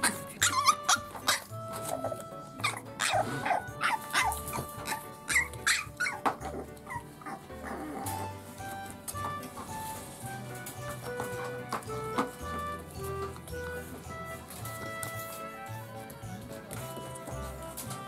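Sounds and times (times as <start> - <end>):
puppy yipping and whining: 0.0 - 8.4.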